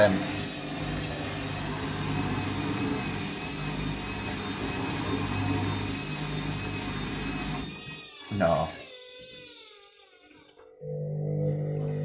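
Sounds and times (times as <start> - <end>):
washing machine spinning: 0.0 - 9.9, 10.6 - 12.0.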